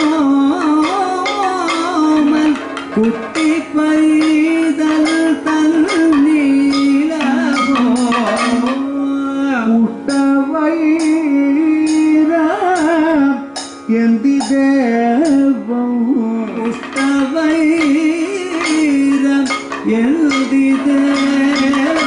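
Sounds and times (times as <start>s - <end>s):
cymbal beats: 0.0s - 9.0s, 16.3s - 22.0s
drum strokes: 0.0s - 9.0s, 16.4s - 22.0s
person singing long notes: 0.0s - 22.0s.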